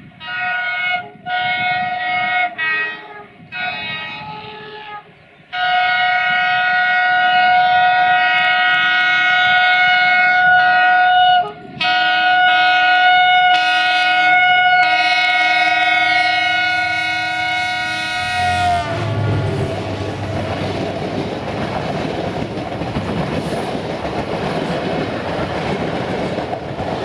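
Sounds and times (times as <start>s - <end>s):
locomotive horn blasts: 0.2s - 21.0s.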